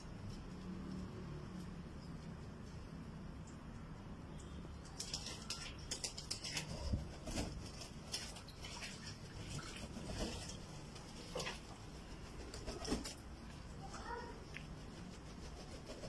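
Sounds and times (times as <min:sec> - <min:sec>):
pigeon feet clicking and scuffling: 0:00.0 - 0:16.0
pigeon wing flutters: 0:09.8 - 0:13.4.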